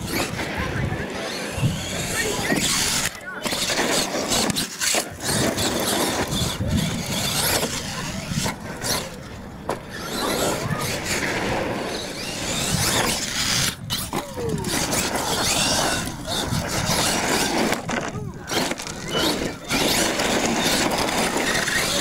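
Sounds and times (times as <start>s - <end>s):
toy truck motor whining: 0.0s - 22.0s.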